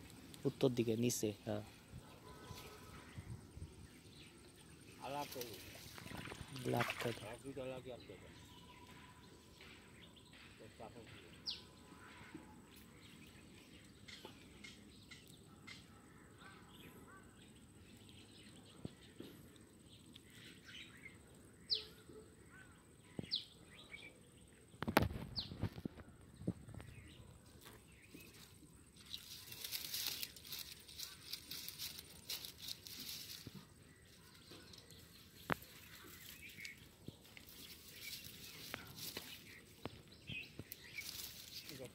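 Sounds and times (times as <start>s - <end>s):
outdoor ambience: 0.0s - 41.9s
bird chirps: 7.9s - 25.8s, 27.9s - 41.9s
rustling hiss: 28.3s - 33.7s, 35.2s - 41.9s.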